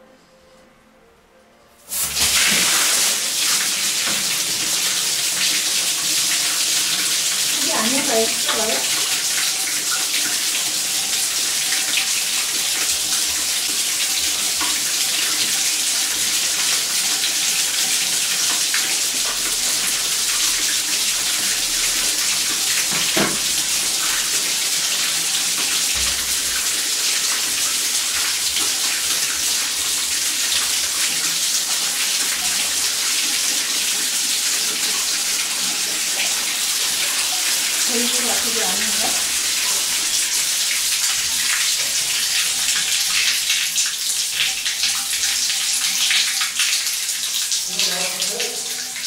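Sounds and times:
water gushing from pipe: 0:01.9 - 0:49.0
knock: 0:22.9 - 0:23.5.

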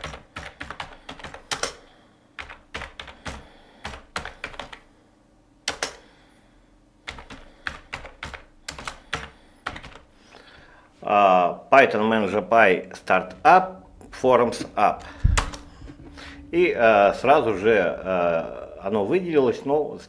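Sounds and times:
typing on computer keyboard: 0:00.0 - 0:01.8, 0:02.4 - 0:04.8, 0:05.7 - 0:06.0, 0:07.1 - 0:10.1.

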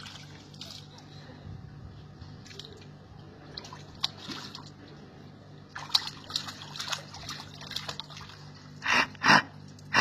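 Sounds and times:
child splashing water: 0:00.0 - 0:01.2, 0:02.4 - 0:05.1, 0:05.7 - 0:08.8.

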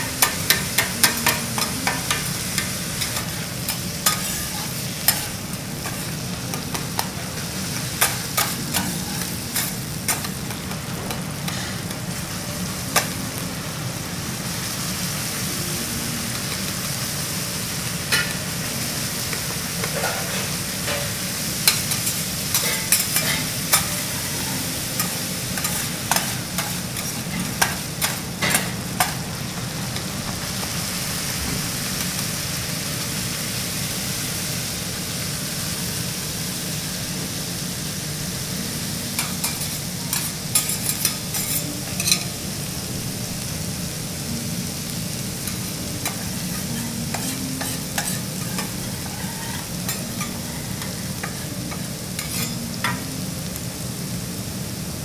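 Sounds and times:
garlic sizzling in oil: 0:00.0 - 0:55.0
metal spatulas scraping griddle: 0:00.2 - 0:10.5, 0:11.4 - 0:12.0, 0:19.8 - 0:29.2, 0:39.2 - 0:42.4, 0:46.0 - 0:53.0.

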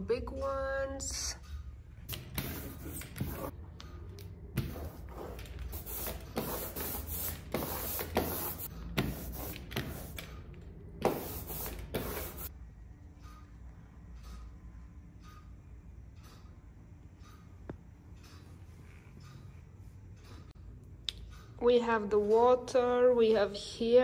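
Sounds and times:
rubber roller rolling through ink: 0:04.6 - 0:12.5.

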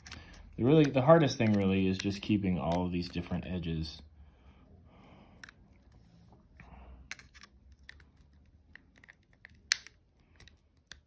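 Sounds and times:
screwdriver clicks and scrapes: 0:00.0 - 0:01.6.

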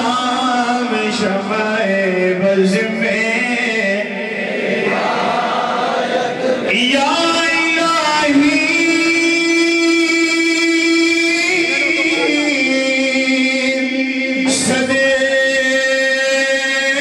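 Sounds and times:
person chanting: 0:06.2 - 0:17.0.

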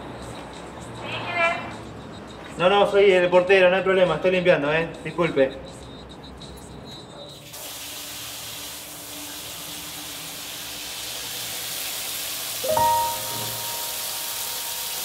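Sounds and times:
shower water spraying: 0:07.4 - 0:15.0
held musical chord: 0:12.6 - 0:15.0.

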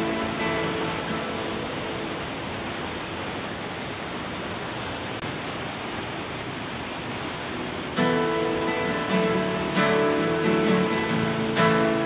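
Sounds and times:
waterfall rushing over rock: 0:00.0 - 0:12.0.

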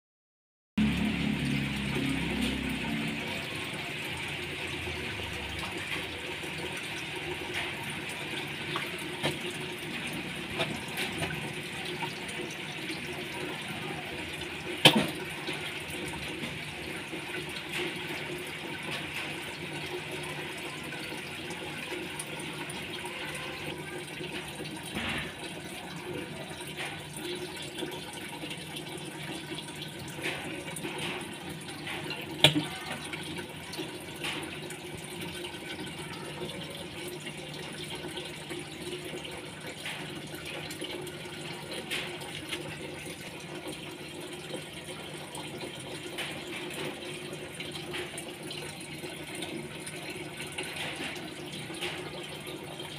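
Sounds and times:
aquarium filter hum: 0:00.8 - 0:52.9
water trickling and bubbling: 0:00.8 - 0:52.9.

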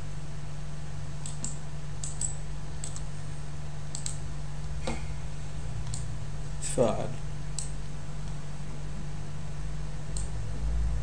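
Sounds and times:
low electrical hum: 0:00.0 - 0:11.0
computer mouse clicks: 0:01.2 - 0:03.1, 0:03.9 - 0:04.2, 0:07.6 - 0:07.8.

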